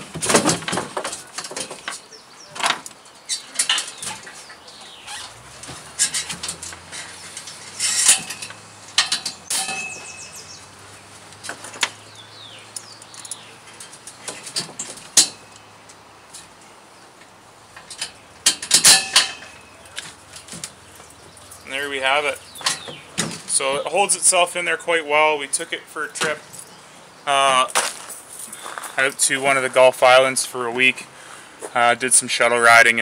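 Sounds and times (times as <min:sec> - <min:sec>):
steel chain clinking and rattling: 0:05.3 - 0:10.6, 0:17.8 - 0:20.6
metal knocks and clicks: 0:05.6 - 0:10.2, 0:17.8 - 0:20.7, 0:22.4 - 0:23.6.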